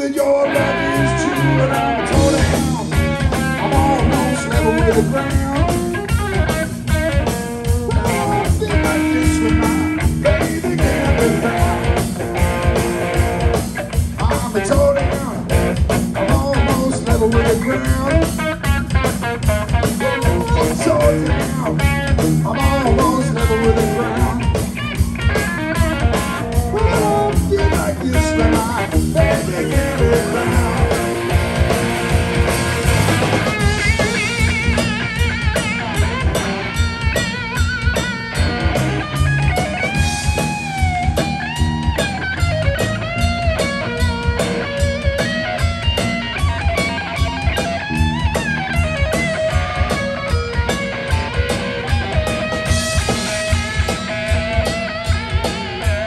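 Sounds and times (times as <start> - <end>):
bass guitar: 0.0 - 56.0
drum kit steady beat: 0.0 - 56.0
electric guitar bending notes: 0.0 - 56.0.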